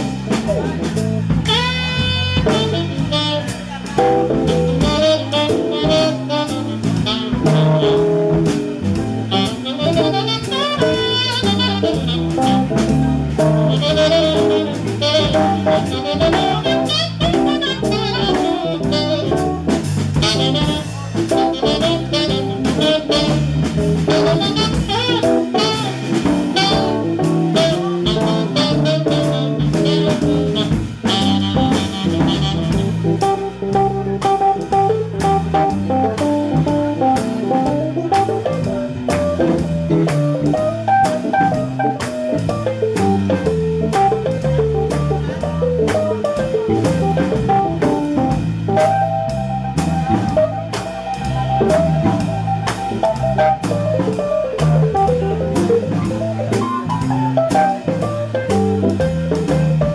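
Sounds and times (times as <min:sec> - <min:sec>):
bass: 0:00.0 - 0:59.9
drum kit: 0:00.0 - 0:59.9
saxophone: 0:01.4 - 0:45.7.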